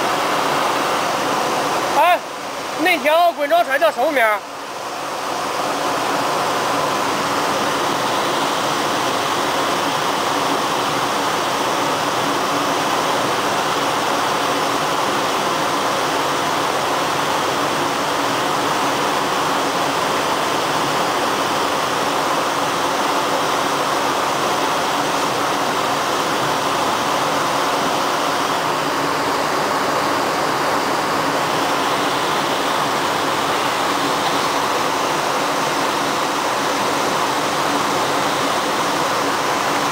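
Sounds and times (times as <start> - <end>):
water rushing: 0.0 - 39.9.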